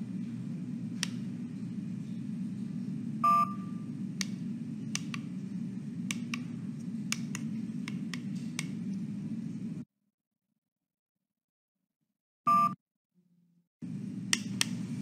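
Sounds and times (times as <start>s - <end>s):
steady low hum: 0.0s - 9.8s, 13.8s - 15.0s.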